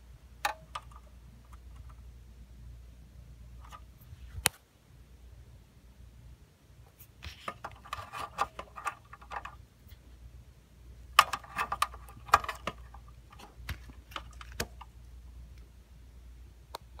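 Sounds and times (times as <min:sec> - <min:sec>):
low steady hum: 0:00.0 - 0:17.0
plastic clicking and scraping: 0:00.4 - 0:02.0, 0:03.6 - 0:04.6, 0:07.2 - 0:10.0, 0:11.1 - 0:15.0.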